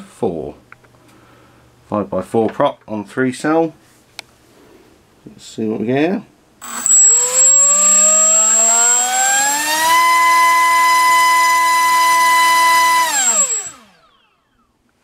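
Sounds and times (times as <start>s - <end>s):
brushless motor whining: 6.6s - 14.3s.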